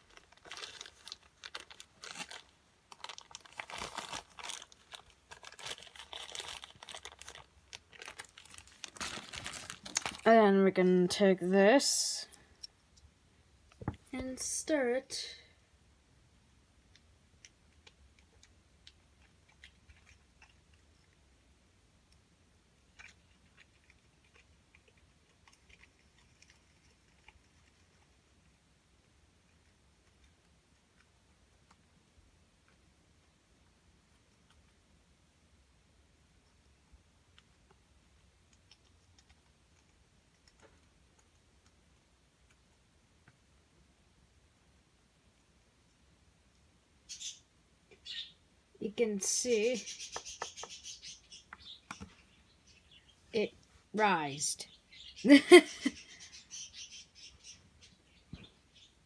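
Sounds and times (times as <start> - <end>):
faint irregular ticks: 16.8 - 21.3, 22.9 - 28.6, 36.4 - 43.4.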